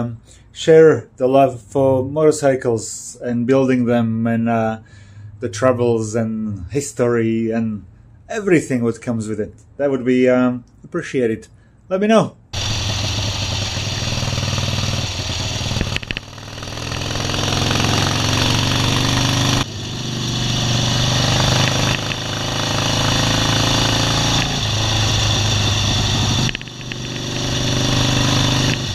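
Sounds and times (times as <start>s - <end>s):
motorcycle engine running: 12.6s - 28.9s.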